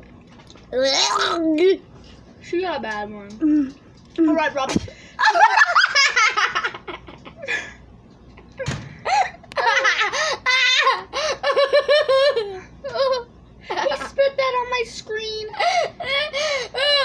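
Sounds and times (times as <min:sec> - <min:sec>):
children laughing: 0:05.2 - 0:07.8, 0:08.4 - 0:14.5.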